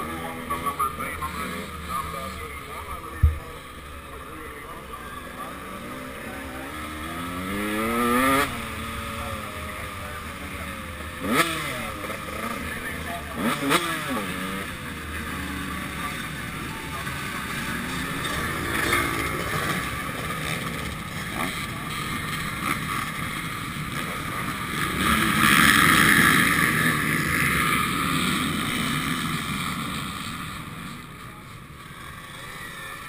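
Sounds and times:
dirt bike engine running: 0:00.0 - 0:31.2.

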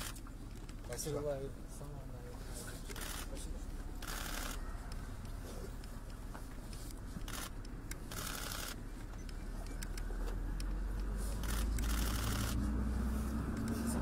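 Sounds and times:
camera shutter clicks: 0:02.9 - 0:03.4, 0:04.0 - 0:04.6, 0:07.2 - 0:08.8, 0:11.4 - 0:12.6.

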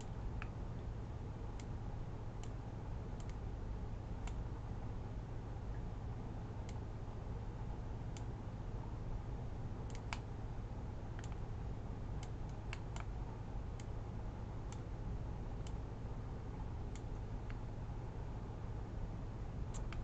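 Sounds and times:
low hum: 0:00.0 - 0:20.0
computer mouse clicking: 0:03.2 - 0:03.4, 0:09.9 - 0:10.3, 0:11.2 - 0:11.4, 0:12.2 - 0:13.2, 0:19.7 - 0:20.0.

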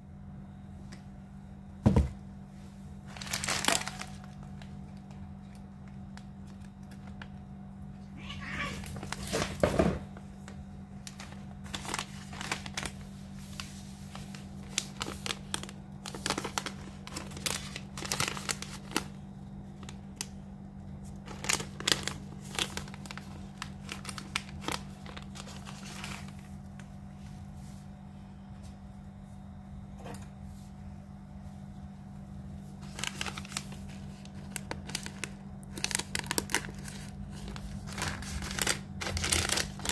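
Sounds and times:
steady low hum: 0:00.0 - 0:39.9
foil pouches crinkling: 0:03.0 - 0:07.5, 0:08.2 - 0:20.4, 0:21.0 - 0:26.9, 0:32.7 - 0:39.9
cat meowing: 0:08.2 - 0:09.0.

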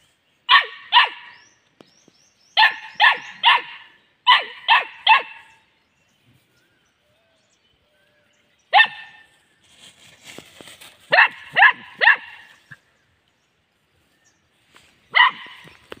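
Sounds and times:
small dog barking: 0:00.5 - 0:01.3, 0:02.6 - 0:05.5, 0:08.7 - 0:09.3, 0:11.1 - 0:12.6, 0:15.1 - 0:15.8.

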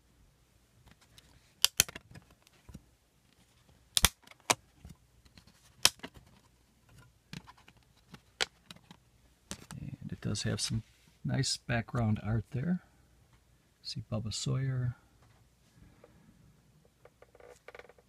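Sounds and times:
plastic clicks and snaps: 0:01.6 - 0:02.3, 0:04.0 - 0:04.6.

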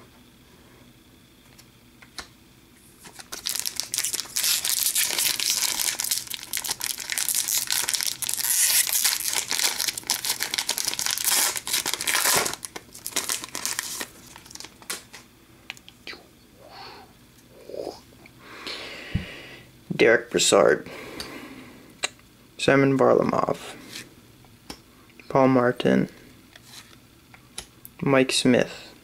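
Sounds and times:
plastic wrapper crinkling and tearing: 0:03.0 - 0:15.2.

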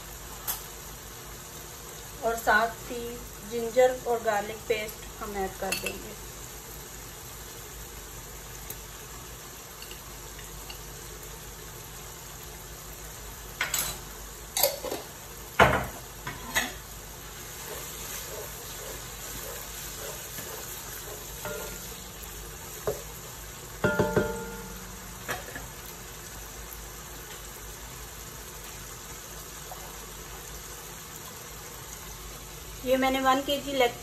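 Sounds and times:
food sizzling in oil: 0:00.0 - 0:34.0
wooden spatula stirring: 0:17.4 - 0:21.9.

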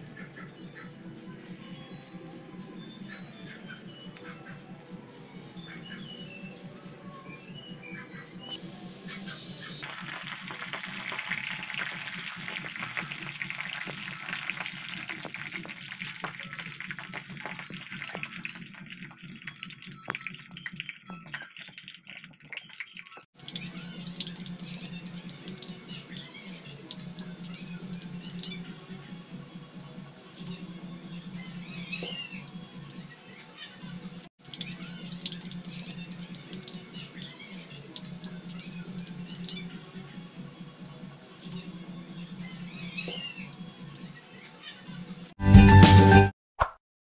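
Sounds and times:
food deep-frying in hot oil: 0:08.5 - 0:28.6, 0:34.4 - 0:40.0.

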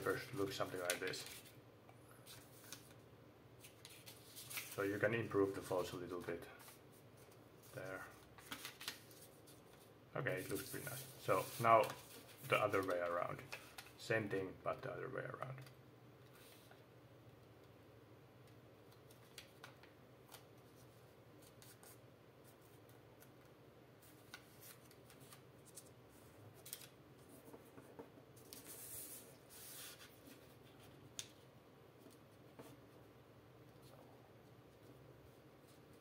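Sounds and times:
paper sliding rustle: 0:00.0 - 0:01.6, 0:03.6 - 0:13.9, 0:28.4 - 0:31.3
paper crinkling: 0:03.6 - 0:05.9, 0:06.6 - 0:14.0, 0:24.0 - 0:27.6.

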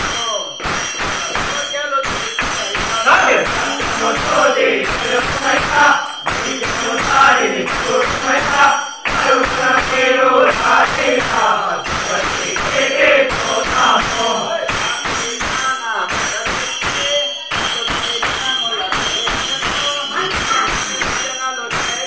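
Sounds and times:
hand claps: 0:00.0 - 0:22.0
men singing devotional song: 0:02.8 - 0:15.4.

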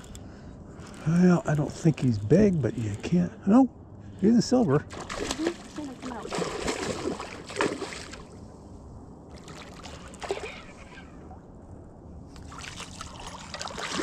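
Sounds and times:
fish splashing water: 0:04.9 - 0:08.3, 0:12.4 - 0:14.0.

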